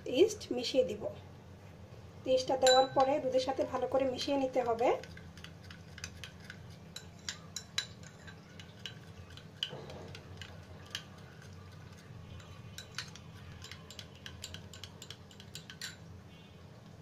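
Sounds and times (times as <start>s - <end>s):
spoon clinking against bowl: 2.6s - 3.3s, 4.2s - 16.1s.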